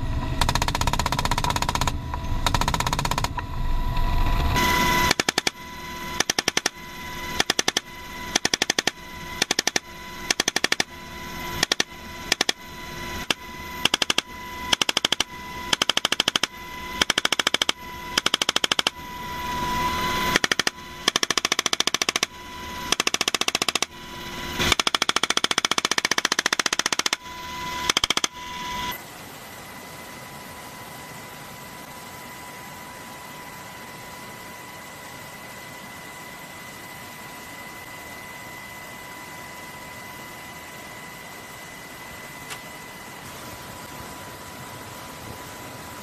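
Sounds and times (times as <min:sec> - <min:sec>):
machine gun firing bursts: 0:00.4 - 0:03.3.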